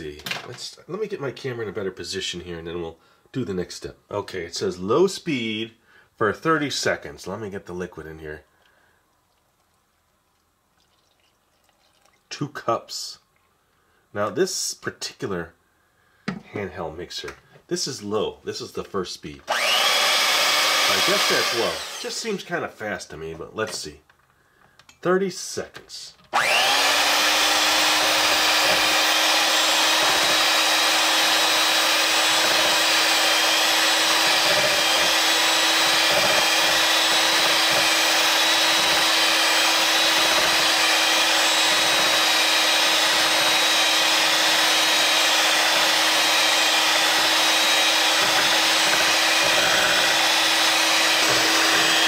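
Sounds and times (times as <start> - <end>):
electric mixer whirring: 19.5 - 22.1, 26.4 - 52.0.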